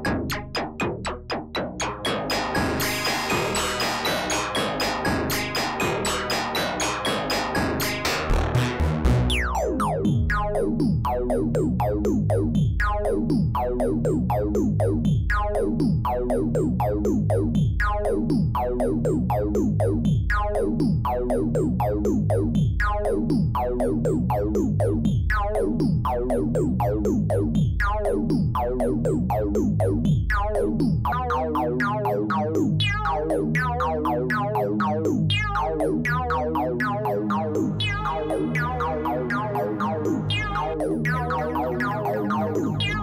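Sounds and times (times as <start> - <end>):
synthesizer fast arpeggio: 7.8 - 14.4, 36.0 - 43.0.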